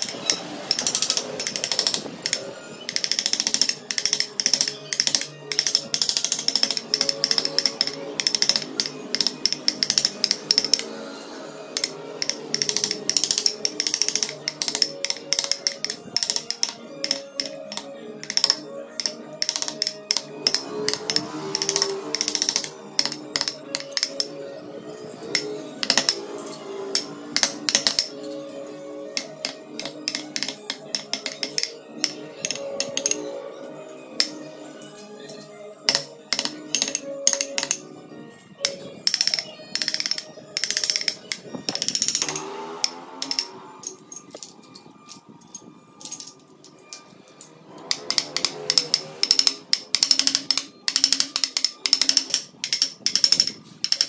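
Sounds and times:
carving tool cutting wood: 0.0s - 10.9s, 11.7s - 24.4s, 29.1s - 33.2s, 38.6s - 43.7s, 47.8s - 54.0s
chisel tapping into wood: 0.0s - 10.9s, 11.8s - 24.4s, 25.3s - 26.2s, 27.0s - 28.1s, 29.2s - 33.2s, 35.9s - 37.8s, 38.6s - 43.5s
background music: 0.0s - 54.0s
scattered taps: 11.8s - 24.4s.

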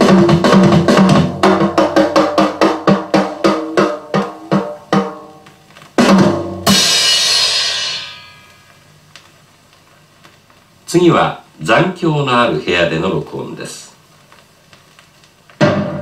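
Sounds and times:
hard drum hit: 0.0s - 5.4s, 6.0s - 8.7s, 15.6s - 16.0s
drum strokes: 0.0s - 9.0s, 15.5s - 16.0s
cymbal crash: 6.0s - 8.9s, 15.6s - 16.0s.

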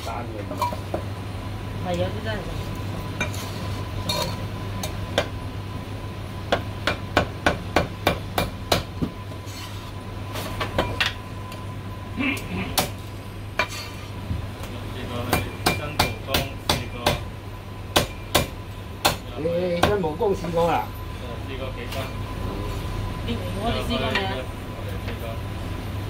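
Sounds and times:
cleaver chopping meat and bone: 6.5s - 9.1s, 15.2s - 17.3s, 17.9s - 20.1s.

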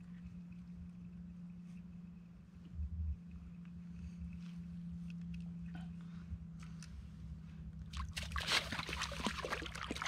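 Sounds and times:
steady low hum: 0.0s - 10.0s
fish splashing in water: 8.0s - 10.0s.

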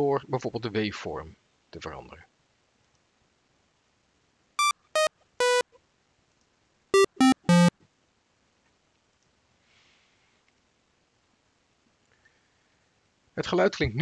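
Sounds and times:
synthesizer notes: 4.6s - 5.6s, 7.0s - 7.7s.

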